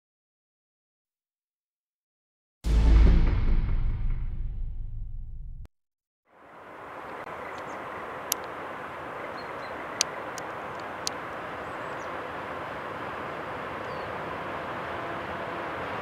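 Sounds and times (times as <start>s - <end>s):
distant train hiss and rumble: 6.3s - 16.0s.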